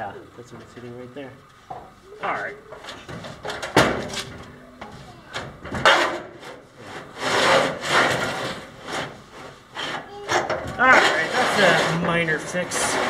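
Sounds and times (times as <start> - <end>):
wooden gantry scraping on track: 5.8 - 13.0.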